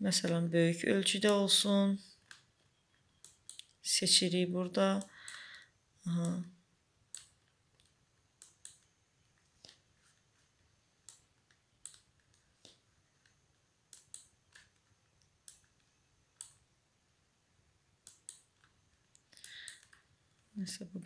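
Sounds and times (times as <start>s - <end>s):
computer mouse clicks: 1.2s - 3.8s, 7.1s - 8.9s, 11.0s - 16.7s, 18.0s - 20.1s.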